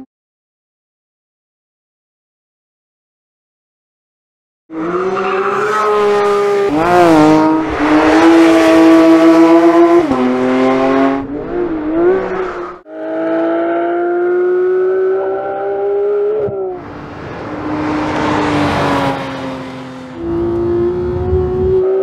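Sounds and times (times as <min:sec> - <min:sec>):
sports car engine at high revs: 0:20.2 - 0:22.0.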